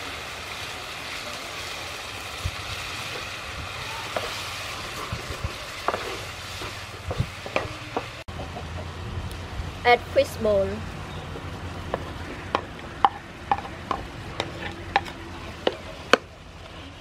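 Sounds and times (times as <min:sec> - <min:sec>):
shrimp sizzling in a pan: 0:00.0 - 0:08.3.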